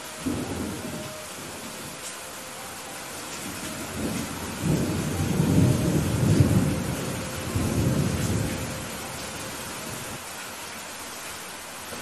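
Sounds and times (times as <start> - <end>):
thunder rumbling: 0.0 - 2.1, 3.0 - 10.2
heavy rain: 0.0 - 12.0.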